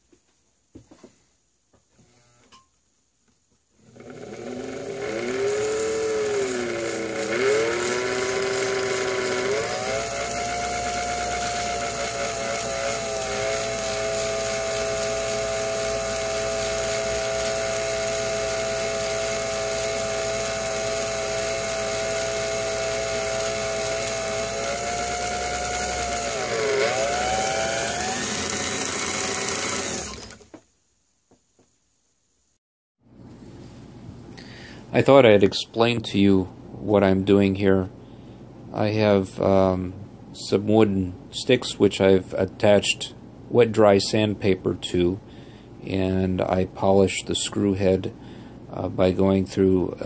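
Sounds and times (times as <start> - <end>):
small electric motor whining: 3.8 - 30.6.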